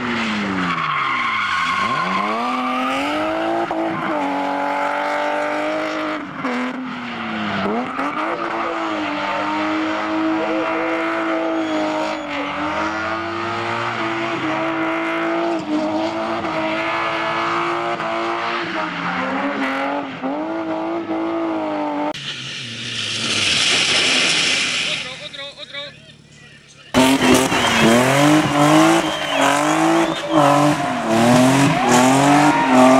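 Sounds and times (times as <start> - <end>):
car engine at high revs: 0.0 - 24.9, 26.9 - 32.9
tyre squeal: 0.3 - 4.9, 10.7 - 14.0, 27.0 - 32.9.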